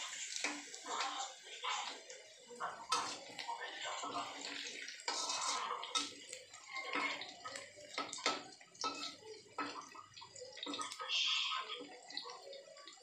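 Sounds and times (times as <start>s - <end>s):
metal spatula scraping a pan: 0.0s - 9.9s
food sizzling in oil: 0.0s - 13.0s.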